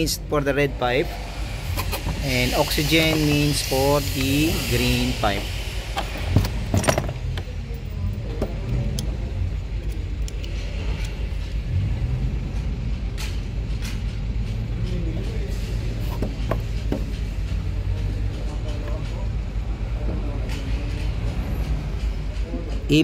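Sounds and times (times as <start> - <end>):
steady low rumble: 0.0 - 22.9.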